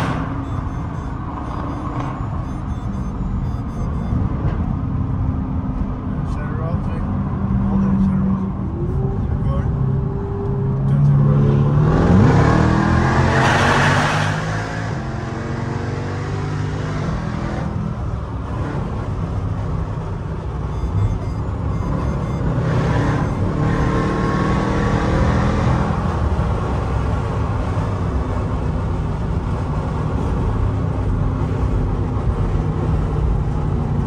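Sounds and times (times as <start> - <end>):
car engine revving: 7.2 - 20.0, 20.7 - 34.0.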